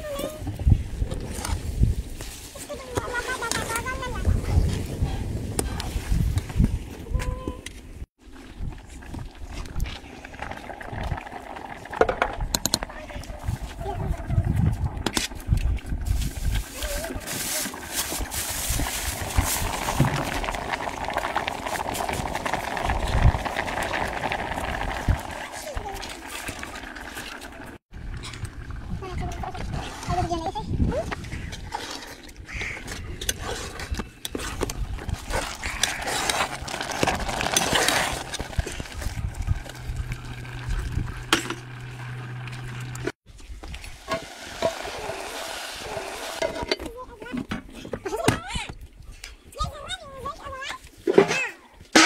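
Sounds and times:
pot boiling and bubbling: 0.0 - 47.9
low hum: 36.0 - 43.2
food sizzling in a pot: 43.9 - 46.6.

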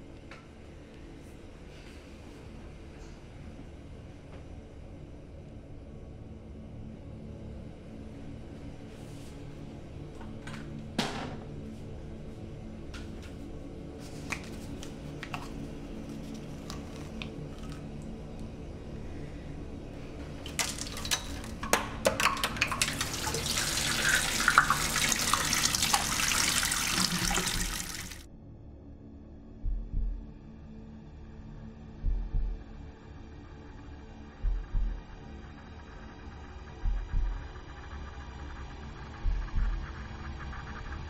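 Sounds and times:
liquid running and splashing: 14.3 - 18.1, 20.2 - 28.2.

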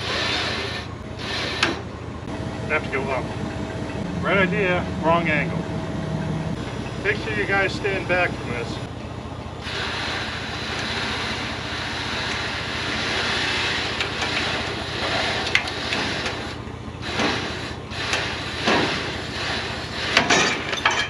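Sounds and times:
engine running under load: 0.0 - 21.0
metal knocking and creaking: 1.6 - 7.8.

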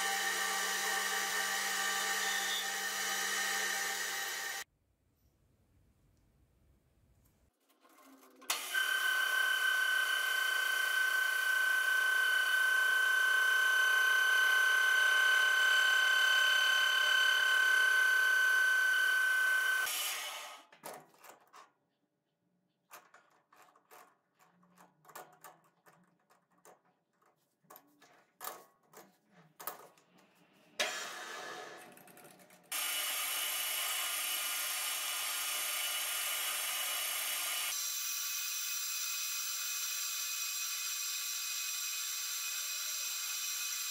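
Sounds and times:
metal lathe whining: 0.0 - 4.6, 8.5 - 19.9.

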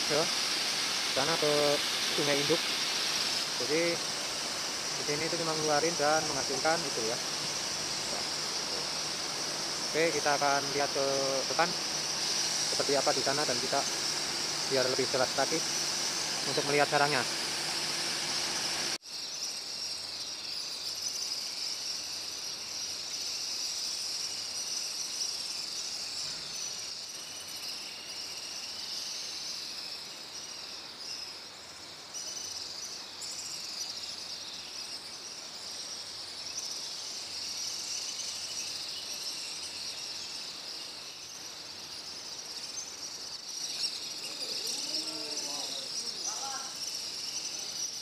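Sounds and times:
high-pitched chirping chorus: 0.0 - 31.3, 32.2 - 48.0.

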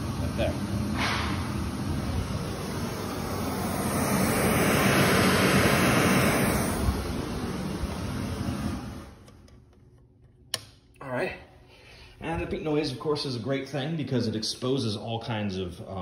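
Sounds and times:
pink noise from speaker: 0.0 - 1.1.

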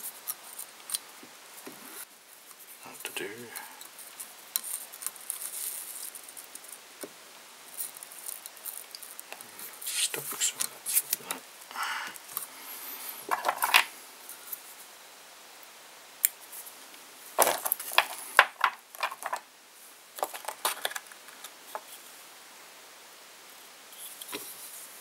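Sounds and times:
fingers scratching and rustling thread: 2.0 - 6.8, 7.7 - 11.4, 17.4 - 19.4, 20.2 - 22.0.

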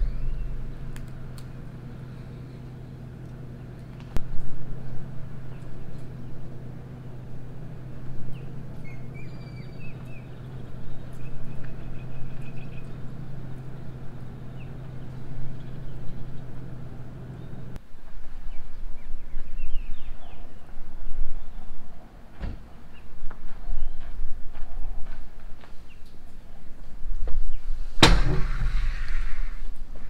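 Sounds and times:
birds chirping: 0.0 - 4.2, 5.0 - 17.8, 18.4 - 22.0
low mechanical hum: 0.0 - 30.0.

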